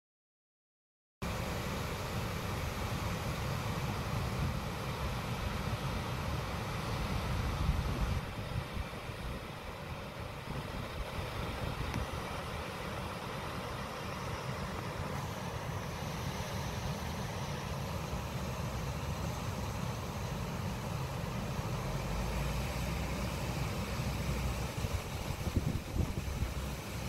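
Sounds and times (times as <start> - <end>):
wind buffeting microphone: 7.2 - 9.4, 24.7 - 27.0.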